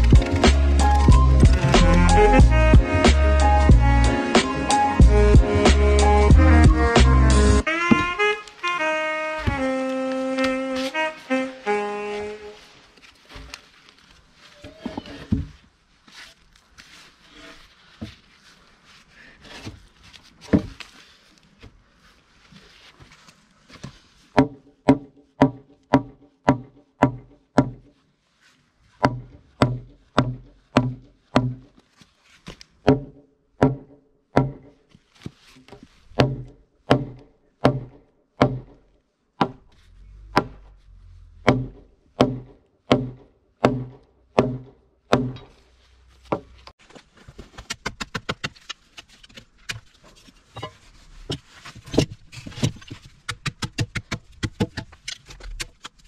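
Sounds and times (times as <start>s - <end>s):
hammer striking timber beam: 24.4s - 27.9s, 29.0s - 31.7s, 32.8s - 34.8s, 36.2s - 38.8s, 39.4s - 40.7s, 41.4s - 45.6s.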